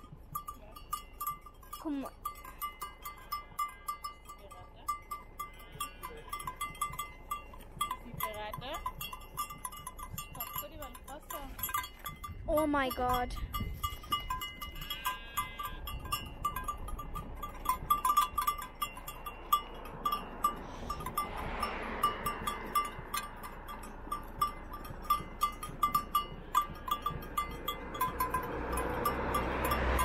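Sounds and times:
sheep bell clinking: 0.0s - 30.0s.

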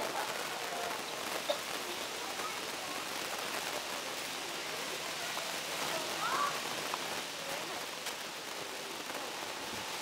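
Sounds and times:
outdoor background hiss: 0.0s - 10.0s.

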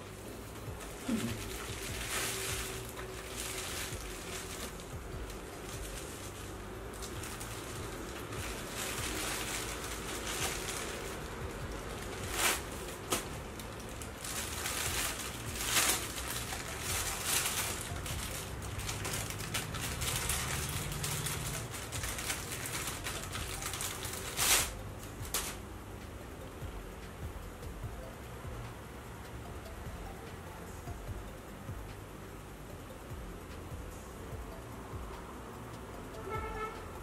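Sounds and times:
plastic crinkling and rustling: 0.2s - 25.6s.

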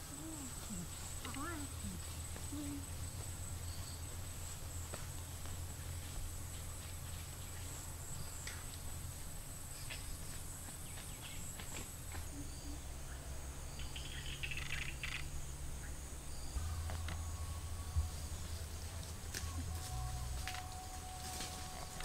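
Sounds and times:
insects trilling: 0.0s - 22.0s
bird chirps: 9.7s - 11.6s, 12.3s - 18.8s
low rumble: 12.8s - 22.0s.

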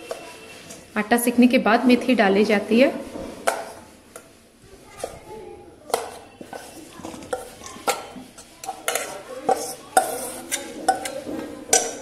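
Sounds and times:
steel bowls knocking and scraping: 0.0s - 0.9s, 5.9s - 12.0s.

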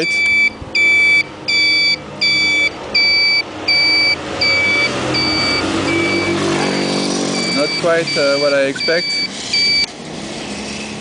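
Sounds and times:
scooter turn-signal beeping: 0.0s - 9.9s.

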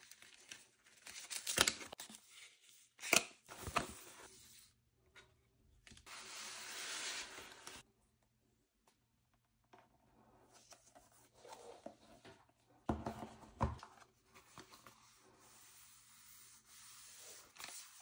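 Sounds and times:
cardboard boxes sliding on paper: 6.1s - 7.8s.

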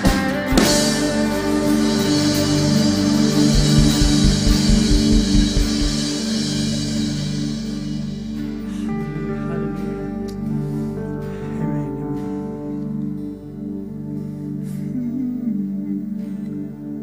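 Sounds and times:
drums: 0.0s - 9.9s
guitar: 0.0s - 17.0s
sustained chords: 1.8s - 8.2s
cymbal crash: 1.8s - 8.6s.

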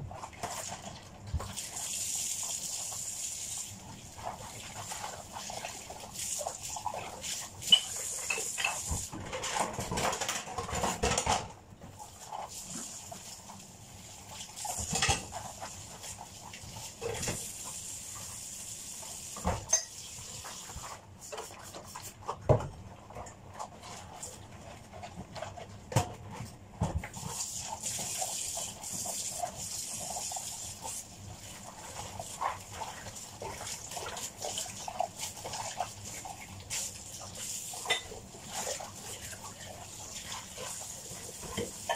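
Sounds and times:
scrubbing dishes: 4.0s - 13.4s, 14.2s - 17.8s, 19.3s - 41.9s
dishes clinking: 19.6s - 20.0s, 37.9s - 38.1s.

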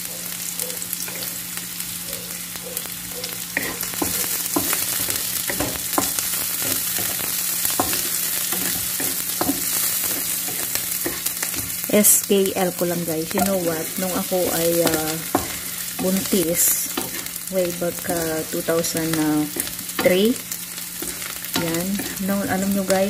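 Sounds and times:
onion and garlic sizzling in oil: 0.0s - 23.0s
wooden spatula scraping a pan: 13.4s - 17.4s.

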